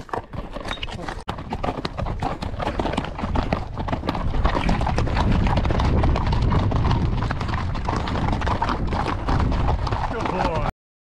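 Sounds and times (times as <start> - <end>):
horse hooves clopping on rocks: 0.0 - 10.7.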